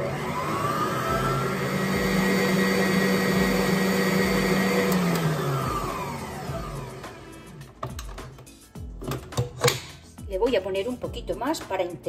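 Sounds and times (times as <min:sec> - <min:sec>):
stand mixer motor whirring: 0:00.0 - 0:07.3.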